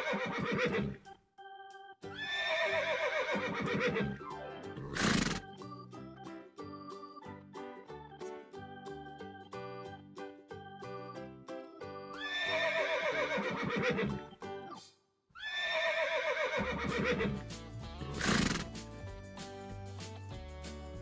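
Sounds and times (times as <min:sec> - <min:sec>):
horse whinnying: 0:00.0 - 0:01.0, 0:02.2 - 0:04.2, 0:04.8 - 0:05.5, 0:12.2 - 0:14.2, 0:15.4 - 0:17.4, 0:18.2 - 0:18.7
light background music: 0:00.0 - 0:15.0, 0:16.0 - 0:21.0.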